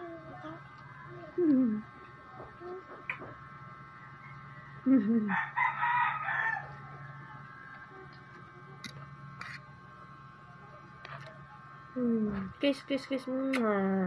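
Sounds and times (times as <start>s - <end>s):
rooster crowing: 5.3s - 7.8s.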